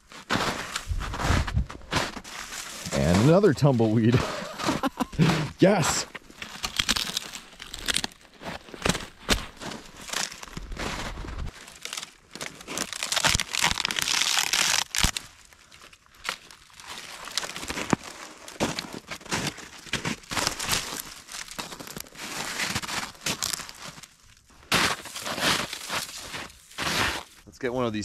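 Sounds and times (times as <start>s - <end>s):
dry twigs crackling and snapping: 6.1s - 27.4s.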